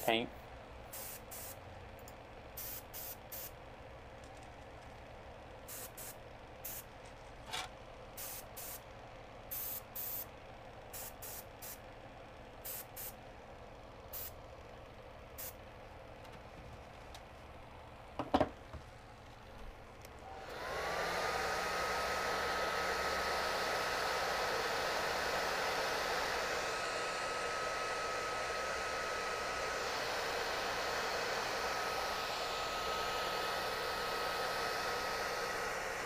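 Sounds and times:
airbrush hissing bursts: 0:00.9 - 0:01.6, 0:02.6 - 0:03.5, 0:05.7 - 0:06.9, 0:08.2 - 0:08.8, 0:09.5 - 0:10.3, 0:11.0 - 0:11.8, 0:12.6 - 0:13.2, 0:20.3 - 0:36.0
knock: 0:18.2 - 0:18.6
hair dryer running: 0:20.2 - 0:36.0.

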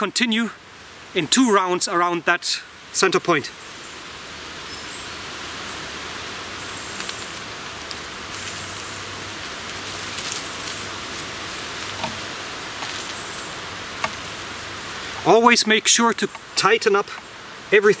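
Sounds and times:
steady hiss: 0:00.0 - 0:18.0
bramble stems crackling and rustling: 0:06.1 - 0:18.0.

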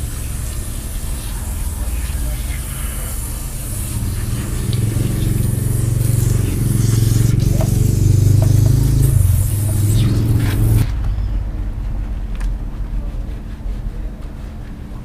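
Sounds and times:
water spraying from hose nozzle: 0:00.0 - 0:10.8
low hum: 0:00.0 - 0:15.0.

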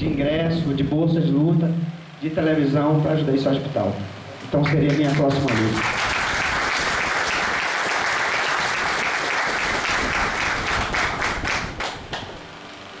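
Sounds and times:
people applauding: 0:04.6 - 0:12.4.

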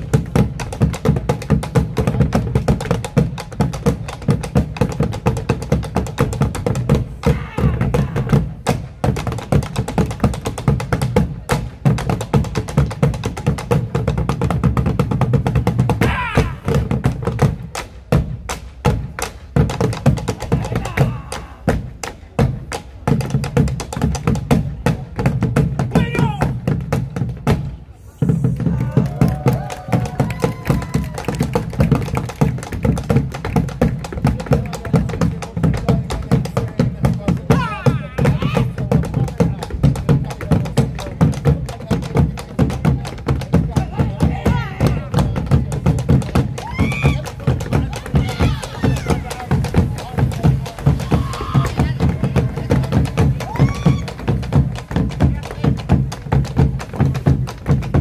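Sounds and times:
drums beaten with sticks: 0:00.0 - 0:58.0
boots stamping: 0:45.5 - 0:58.0.

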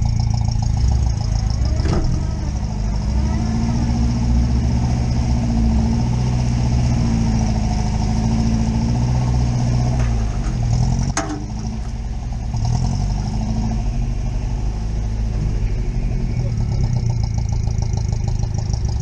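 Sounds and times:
car engine running at low revs: 0:00.0 - 0:19.0
sharp clack: 0:09.9 - 0:12.0.

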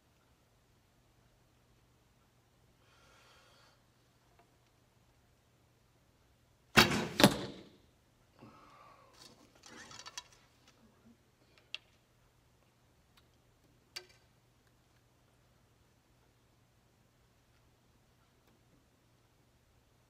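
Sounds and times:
arrow striking target: 0:06.7 - 0:07.8.

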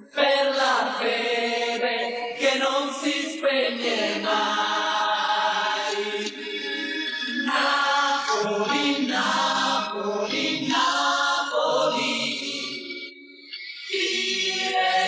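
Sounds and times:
many voices chanting: 0:00.0 - 0:12.9, 0:13.9 - 0:15.0.

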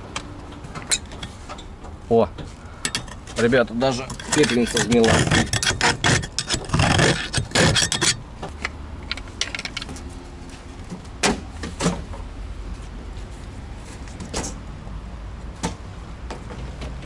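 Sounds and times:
metal parts clinking and scraping: 0:02.8 - 0:10.0.

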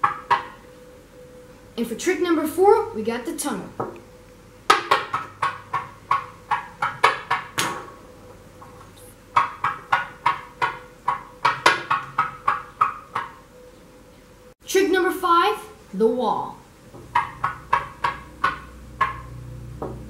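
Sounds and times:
wooden stick clicking on countertop: 0:17.1 - 0:20.0.

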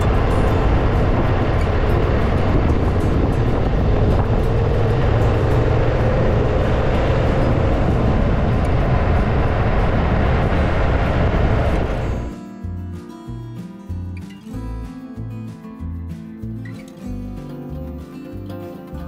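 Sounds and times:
motorcycle engine and road noise: 0:00.0 - 0:12.4
wind rushing: 0:00.0 - 0:12.4.

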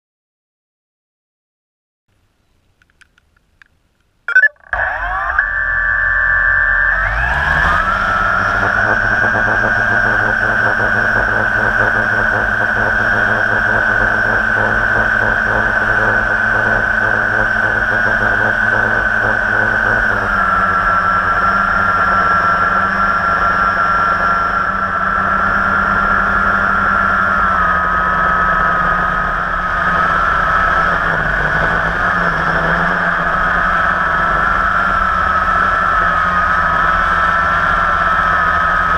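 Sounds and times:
faint clicks: 0:02.1 - 0:04.6
quadcopter motors whining: 0:04.8 - 0:38.9.

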